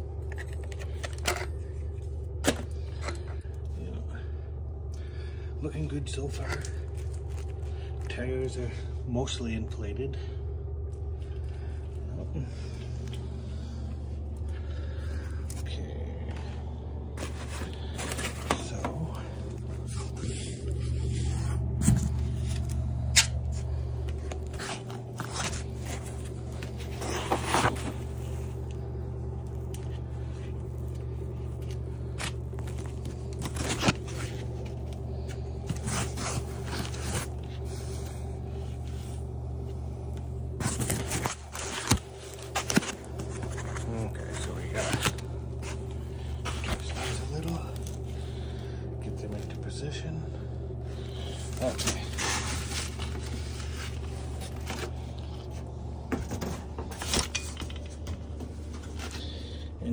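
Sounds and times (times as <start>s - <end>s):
steady low hum: 0.0s - 59.9s
foam packing scraping and rustling: 17.2s - 22.7s, 24.4s - 28.6s, 31.6s - 38.0s, 40.5s - 48.0s, 51.0s - 55.6s
knocks and rustles of packing: 40.5s - 48.0s.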